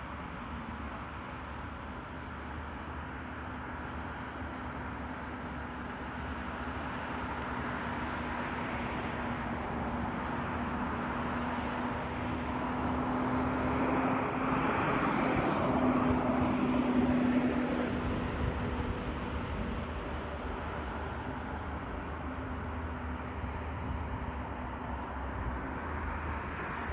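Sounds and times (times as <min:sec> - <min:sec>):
vehicle engine passing by: 0:10.0 - 0:26.9.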